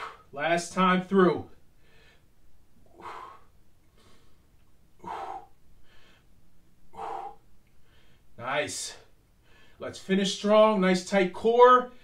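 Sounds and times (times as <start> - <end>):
man breathing hard: 0.0 - 0.3, 1.8 - 8.4, 9.0 - 9.8.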